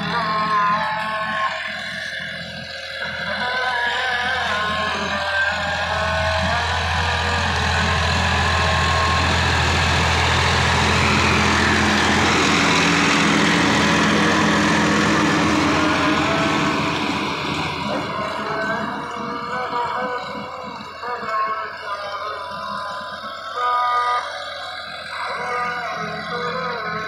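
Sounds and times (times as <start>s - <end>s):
tractor engine hum: 0.0s - 27.0s
tiller churning soil: 4.1s - 21.7s.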